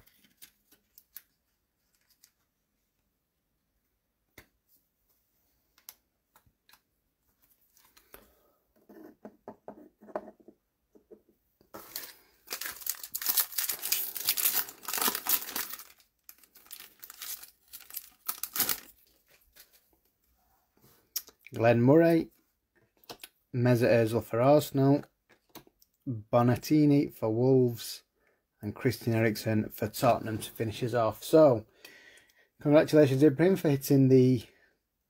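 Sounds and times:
foil wrapper tearing and crinkling: 0:11.8 - 0:19.8.

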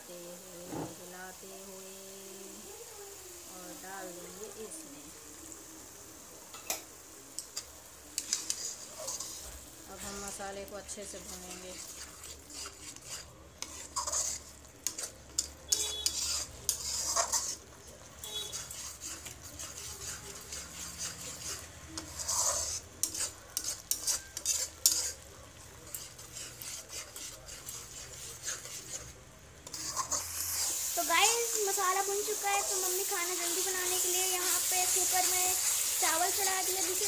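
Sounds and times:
light sizzle: 0:00.0 - 0:37.0
metal spatula scraping a pan: 0:07.4 - 0:37.0
spatula clinking against pan: 0:22.0 - 0:25.2.

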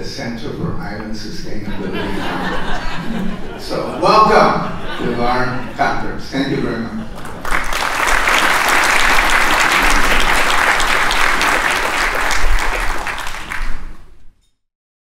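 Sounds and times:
audience applauding: 0:07.1 - 0:14.1.

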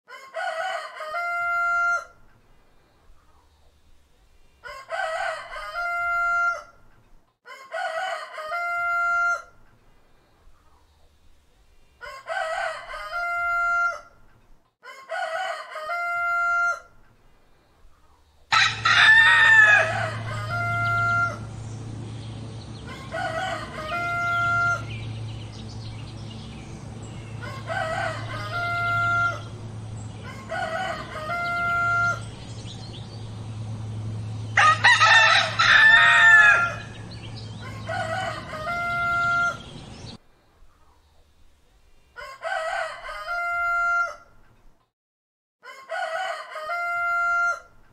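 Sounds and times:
roosters crowing: 0:00.1 - 0:02.3, 0:04.6 - 0:09.6, 0:12.0 - 0:17.0, 0:18.5 - 0:40.2, 0:42.2 - 0:44.4, 0:45.6 - 0:47.9
steady low hum: 0:17.2 - 0:40.7.

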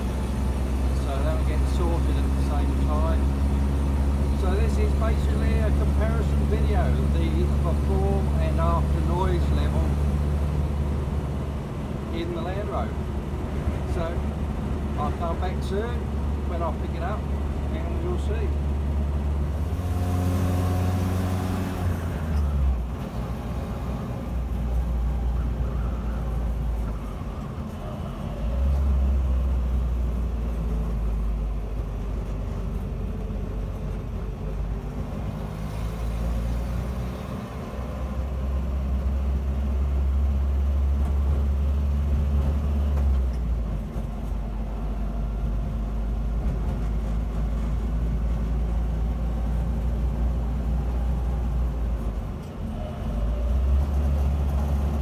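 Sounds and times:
car engine droning in cab: 0:00.0 - 0:55.0.

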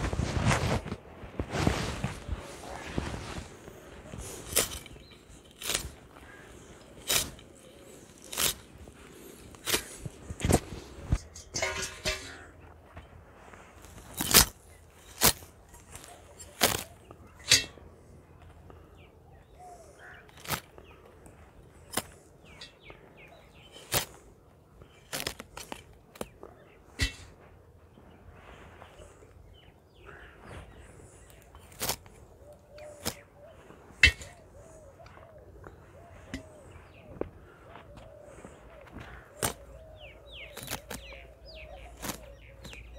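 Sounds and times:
knife cutting crisp stalks: 0:04.4 - 0:06.4, 0:07.0 - 0:08.6, 0:40.5 - 0:41.2.

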